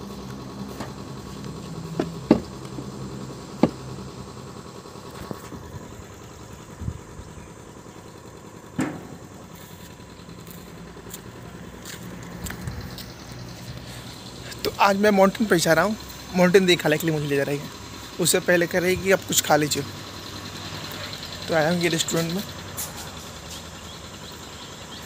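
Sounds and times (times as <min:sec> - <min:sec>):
motorbike engine idling: 0:00.0 - 0:25.0
sharp knocks: 0:02.0 - 0:02.6, 0:03.6 - 0:03.8, 0:08.8 - 0:09.3.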